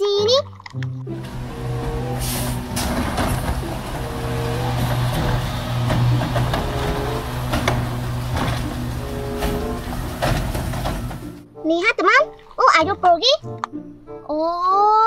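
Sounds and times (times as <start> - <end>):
diesel engine running: 1.1 - 11.4
hydraulic arm lifting: 1.1 - 11.4
knocks from cart and arm: 2.6 - 11.4.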